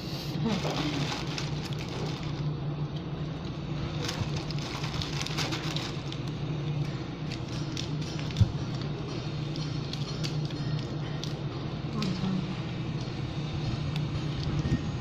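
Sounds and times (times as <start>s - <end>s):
steady low hum: 0.0s - 15.0s
plastic bag crinkling: 0.4s - 2.6s, 3.8s - 6.5s.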